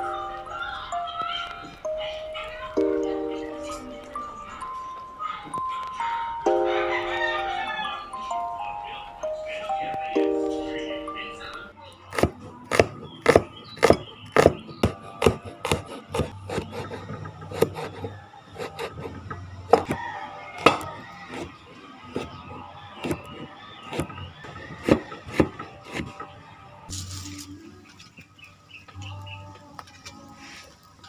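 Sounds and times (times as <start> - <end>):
knife chopping on wooden board: 12.1 - 19.2, 19.8 - 20.0, 23.0 - 26.1.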